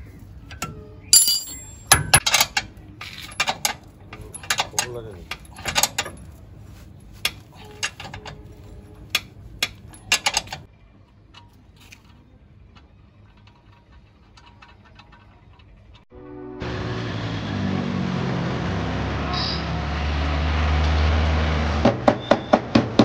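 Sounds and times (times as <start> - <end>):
hand tools clanking on steel: 0.4 - 10.7.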